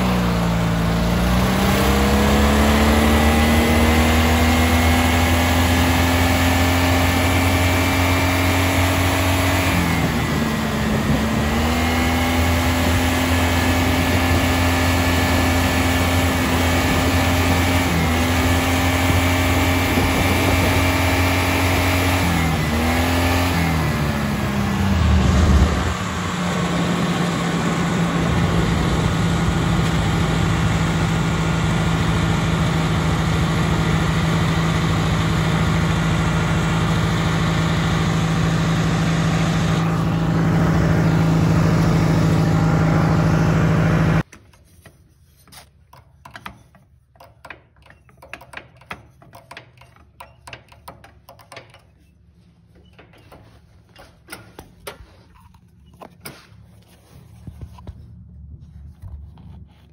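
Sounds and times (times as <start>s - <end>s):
engine idling: 0.0s - 44.2s.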